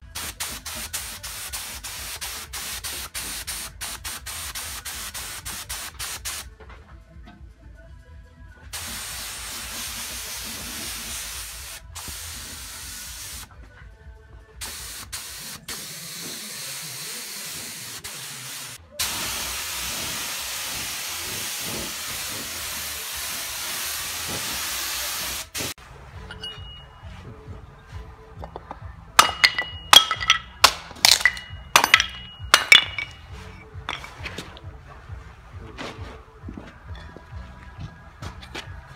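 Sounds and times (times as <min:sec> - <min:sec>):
paint spray gun hissing: 0:08.8 - 0:13.5, 0:14.6 - 0:25.8.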